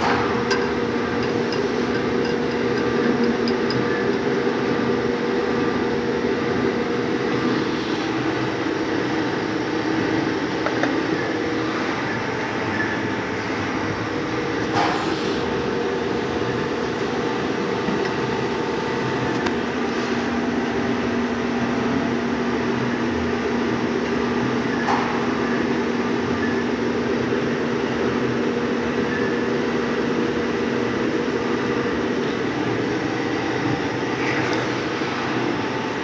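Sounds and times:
lathe humming: 0.0 - 14.8, 30.1 - 36.0.

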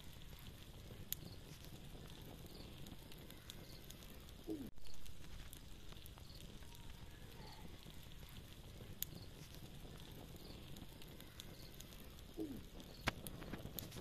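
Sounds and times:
campfire crackling and popping: 0.0 - 14.0.

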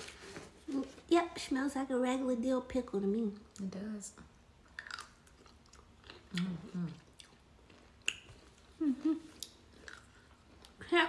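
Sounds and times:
pickle crunching: 4.6 - 8.7, 9.3 - 10.8.

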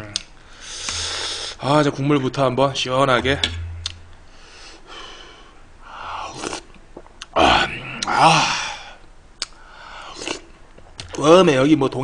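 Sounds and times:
man slurping broth: 6.2 - 6.7, 10.0 - 10.5
man groaning: 7.4 - 8.9.

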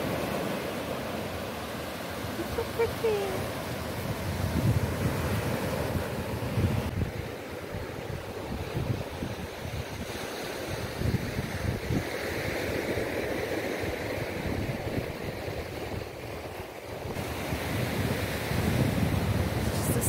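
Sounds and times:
small waves breaking on beach: 0.0 - 20.0
wind gusting on microphone: 2.1 - 20.0.

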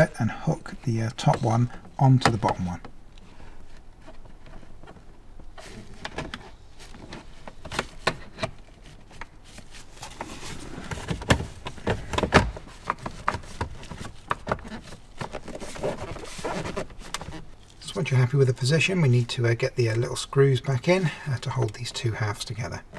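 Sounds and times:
plastic parts clicking and knocking: 10.9 - 16.1.

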